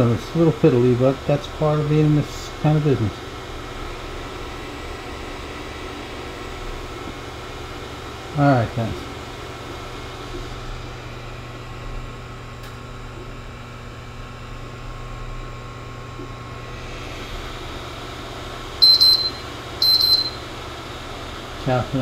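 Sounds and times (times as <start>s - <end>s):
cooling fans humming: 0.0s - 22.0s
short electronic beeps: 18.8s - 20.4s.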